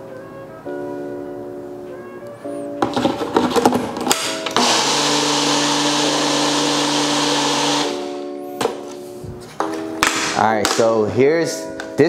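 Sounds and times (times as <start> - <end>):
blender whirring: 4.3 - 8.2.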